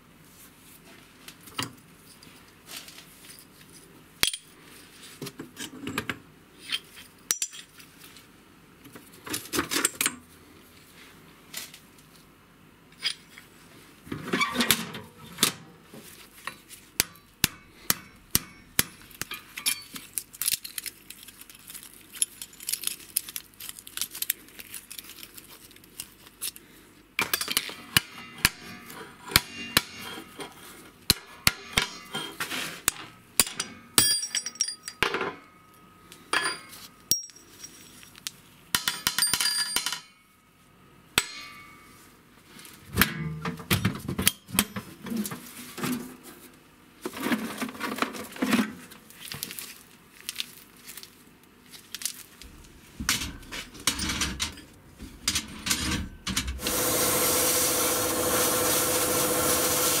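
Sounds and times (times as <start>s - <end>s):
metal tools knocking and clinking: 17.9s - 20.7s, 27.2s - 35.5s, 36.3s - 38.0s, 38.8s - 40.2s, 52.5s - 56.5s.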